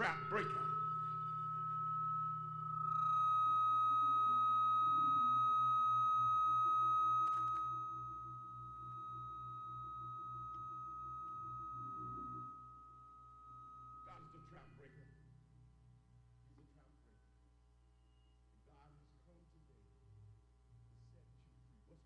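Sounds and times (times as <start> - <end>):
pulsing organ-like chords: 0.0 - 14.9
high whistling tone: 0.0 - 15.3, 18.0 - 18.6
click: 7.2 - 7.7.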